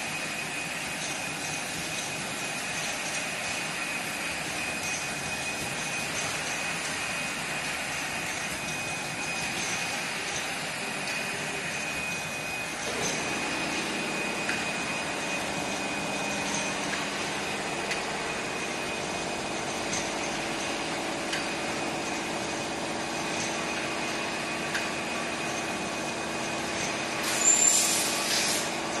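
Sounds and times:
machine hum: 3.9 - 26.9
hiss burst: 27.2 - 28.7.

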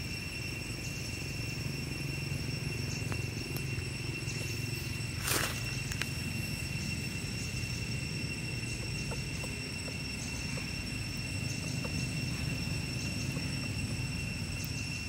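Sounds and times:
thin high-pitched drone: 0.0 - 15.0.

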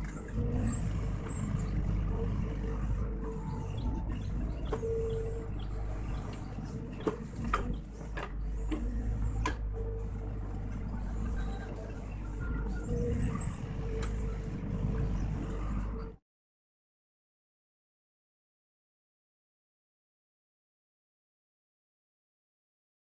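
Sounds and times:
excavator diesel engine running: 0.0 - 16.0.

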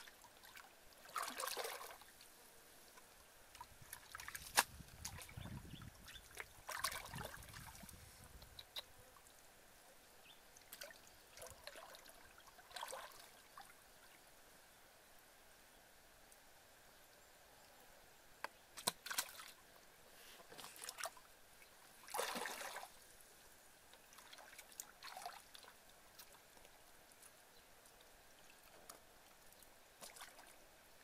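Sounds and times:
hands splashing in muddy water: 1.0 - 2.0, 6.3 - 7.9, 22.0 - 22.9.

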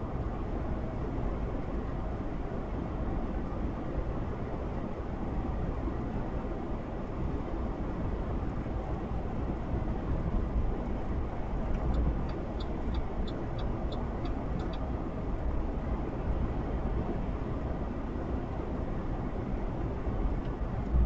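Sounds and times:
low vehicle rumble: 8.4 - 21.0.

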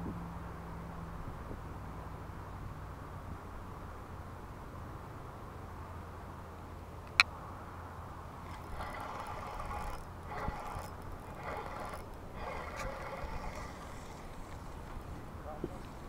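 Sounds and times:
fishing reel whirring: 8.4 - 16.0.

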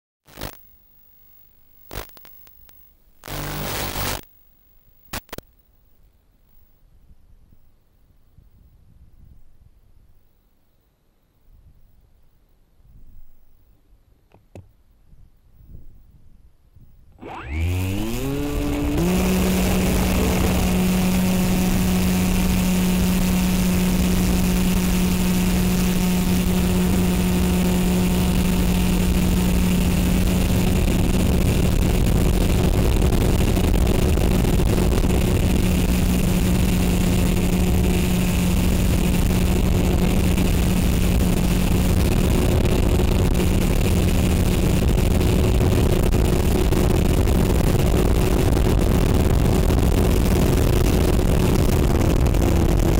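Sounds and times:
model aircraft motor whine: 17.2 - 52.9.

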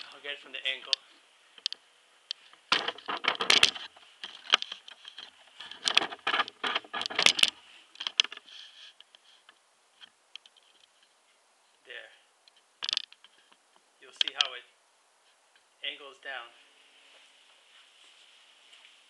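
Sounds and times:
camera handling clicks and rustles: 0.8 - 11.1, 12.5 - 13.6.

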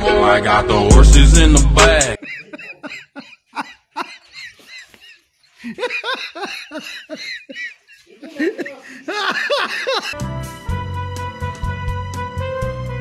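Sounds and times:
person laughing: 2.0 - 10.2.

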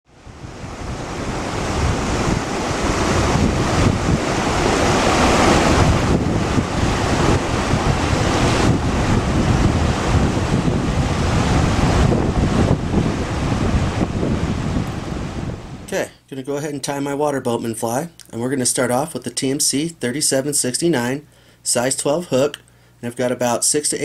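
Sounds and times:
wind buffeting microphone: 0.1 - 15.9.

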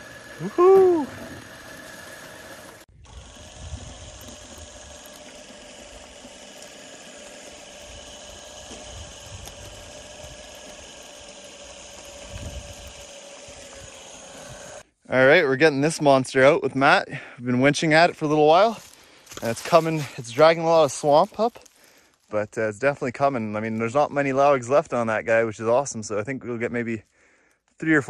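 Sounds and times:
winch whining: 0.0 - 14.8
man whooping: 0.4 - 1.5.

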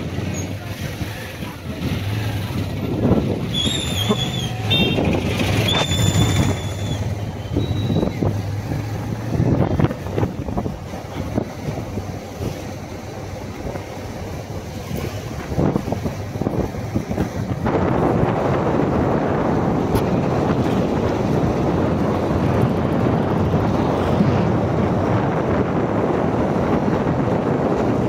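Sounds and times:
passing motor vehicles: 0.0 - 28.0
high warbling whistle tones: 3.5 - 5.0, 5.6 - 8.2.

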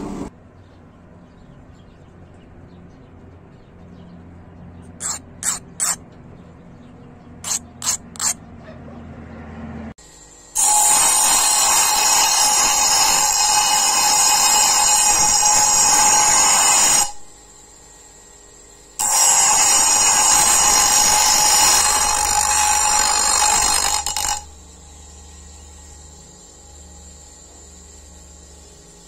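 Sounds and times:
knife grinding on abrasive wheel: 4.9 - 6.1, 7.4 - 8.5, 10.0 - 29.0
grinder motor whine: 10.0 - 29.0.

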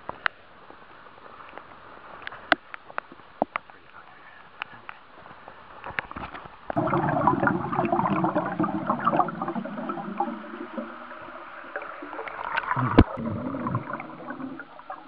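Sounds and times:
pool water splashing: 6.8 - 15.0
underwater churning bubbling rush: 6.8 - 15.0.

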